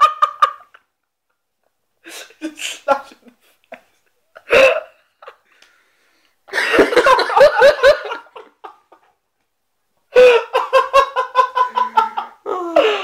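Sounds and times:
men laughing: 6.5s - 9.2s, 10.2s - 13.0s.

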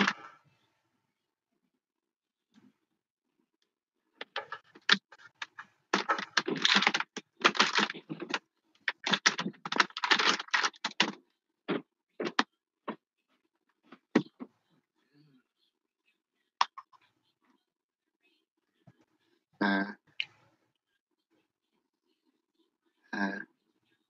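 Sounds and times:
computer keyboard typing: 4.3s - 11.2s.

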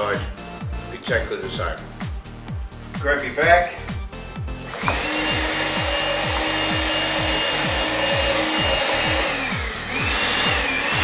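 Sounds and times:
electronic music with kick drum: 0.0s - 11.0s
power tool motor running: 4.7s - 11.0s.

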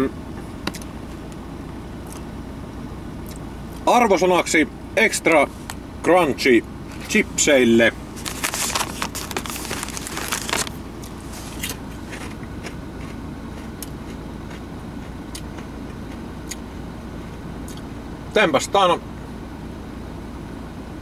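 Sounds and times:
car engine humming: 0.0s - 21.0s
crisp packet crinkling: 8.1s - 12.2s
chewing crunchy chips: 8.2s - 16.6s.

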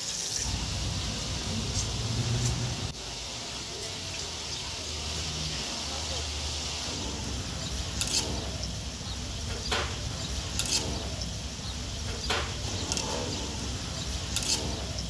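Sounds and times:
oil sizzling: 0.0s - 15.0s
wire strainer scraping a wok: 6.9s - 9.1s, 12.6s - 15.0s.

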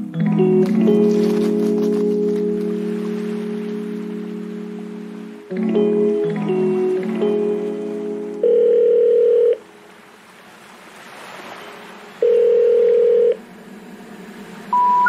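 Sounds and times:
soundtrack music: 0.0s - 8.4s
long electronic beeps: 14.7s - 15.0s.

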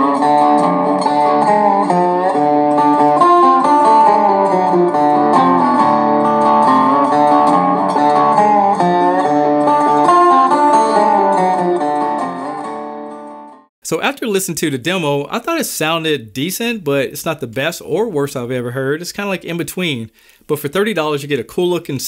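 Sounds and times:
plucked guitar music: 0.0s - 13.7s.

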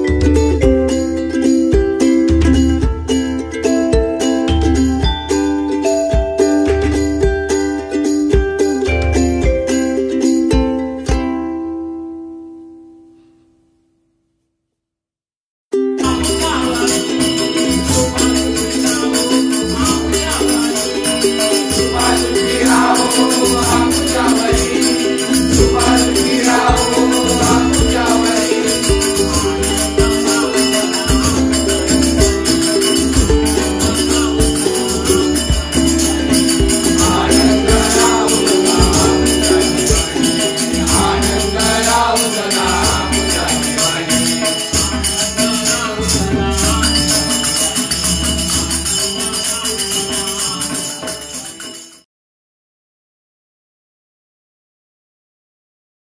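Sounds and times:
hand drum beat: 0.0s - 11.5s, 16.0s - 51.8s
men singing together: 16.0s - 51.8s
jingling hand cymbals: 16.0s - 52.0s
harmonium: 16.1s - 52.0s.

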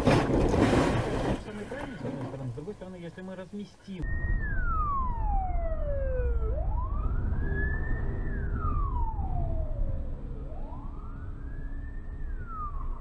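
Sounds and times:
low road rumble: 0.0s - 13.0s
ambulance siren wailing: 4.0s - 13.0s.

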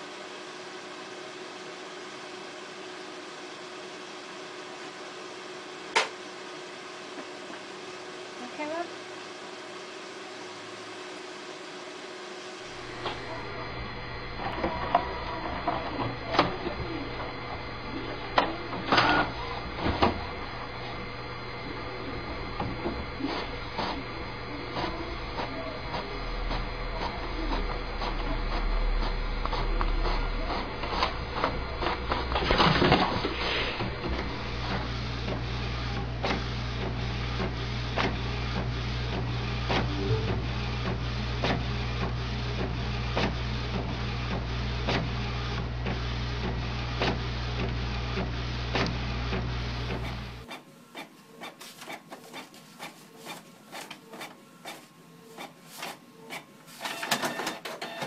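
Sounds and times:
printer hum: 0.0s - 58.0s
inkjet printer printing: 12.0s - 58.0s.

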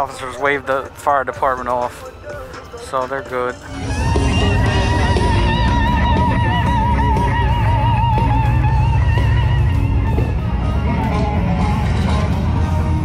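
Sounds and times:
low musical accompaniment: 0.0s - 13.0s
lead guitar with vibrato: 3.7s - 13.0s.

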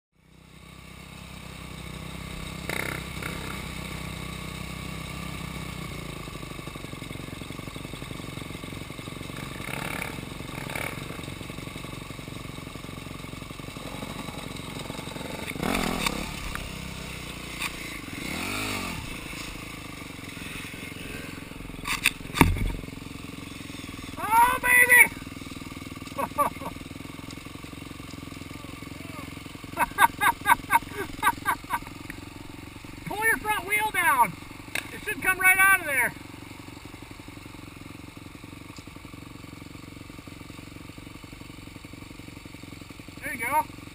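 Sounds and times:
dirt bike engines idling and revving: 0.2s - 43.9s
sharp knocks: 21.9s - 23.0s.

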